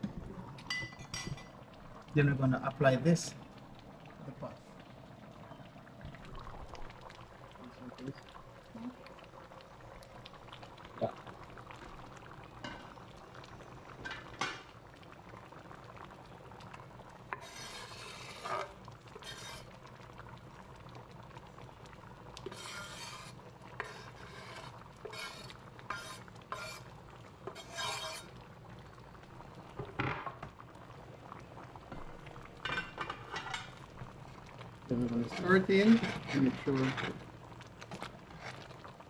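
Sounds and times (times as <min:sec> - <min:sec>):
stew simmering: 0:00.0 - 0:39.0
knife scraping cutting board: 0:17.4 - 0:19.7, 0:22.5 - 0:26.8, 0:27.5 - 0:28.2, 0:35.3 - 0:37.2.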